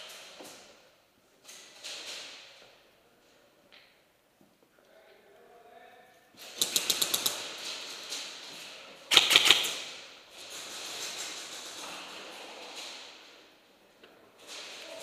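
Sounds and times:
airsoft gun rapid-fire bursts: 6.6s - 7.4s, 9.1s - 9.9s.

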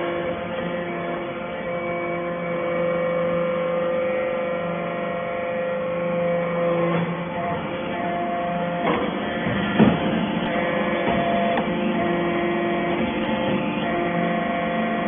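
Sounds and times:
hydraulic motor and pump humming: 0.0s - 15.0s
knocks: 8.8s - 11.8s.

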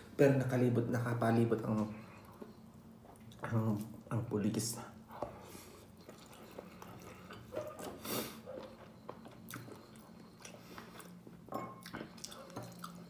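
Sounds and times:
faint low hum: 0.0s - 13.0s
chewing rice: 5.2s - 13.0s.

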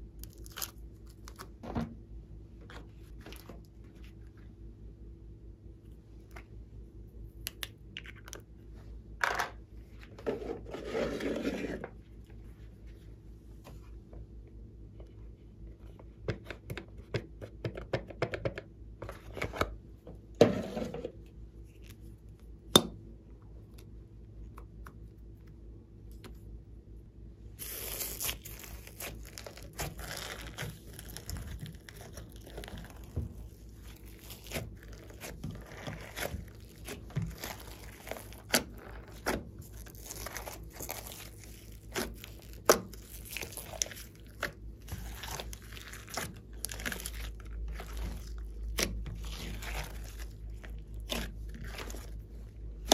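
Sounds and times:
slime crackling and squishing: 0.0s - 1.6s, 27.5s - 52.9s.

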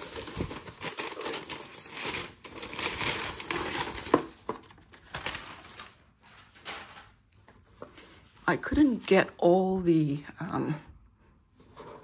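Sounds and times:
paper crinkling and rustling: 0.0s - 9.4s.

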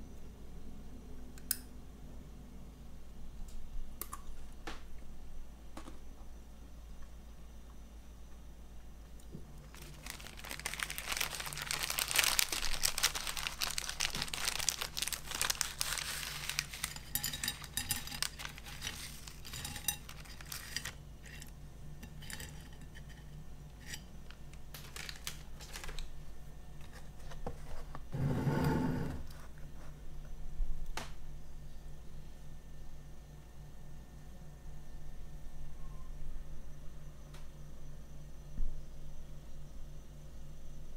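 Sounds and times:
foil snack bag crinkling: 9.6s - 21.5s, 24.2s - 26.2s.

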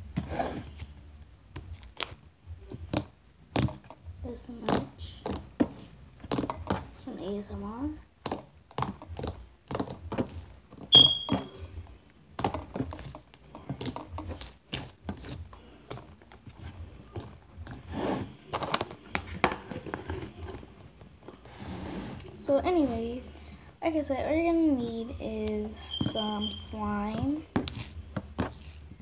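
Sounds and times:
high squeak: 10.9s - 12.1s, 25.8s - 26.8s.

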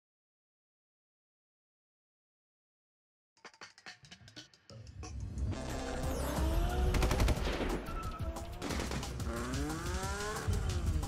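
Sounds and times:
action trailer music: 3.8s - 11.0s
machine-gun fire: 6.9s - 8.0s, 8.6s - 9.4s.

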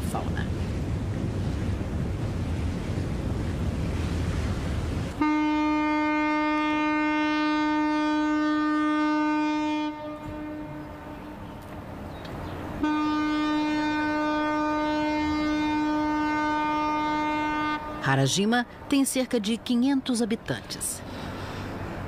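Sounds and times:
ship horn blasts: 5.1s - 11.6s, 12.8s - 18.4s.

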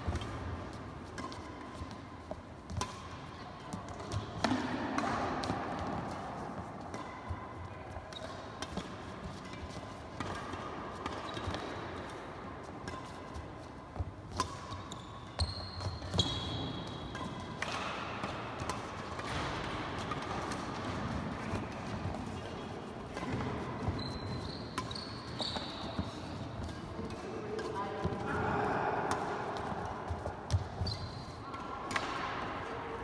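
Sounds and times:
rackets striking shuttlecock: 0.0s - 28.2s, 29.0s - 32.7s
shoe squeaks on floor: 14.7s - 16.9s, 23.2s - 26.3s, 30.5s - 31.4s.

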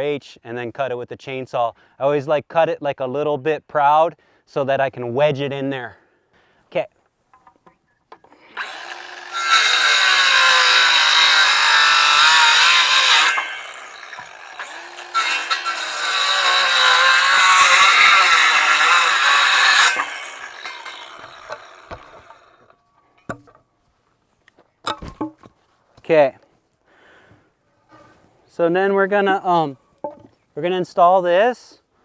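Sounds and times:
chainsaw cutting wood: 8.3s - 22.8s.

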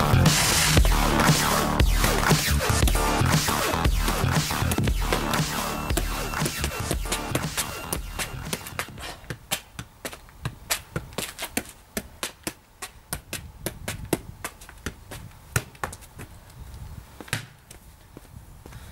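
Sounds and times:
football tapping against shoe: 7.1s - 16.3s.

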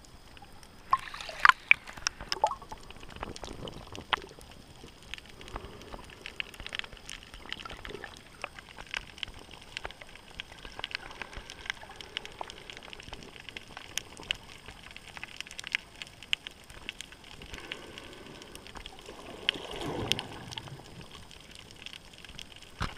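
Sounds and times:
rush of water: 0.8s - 3.6s
underwater clicks and pops: 0.9s - 4.3s.

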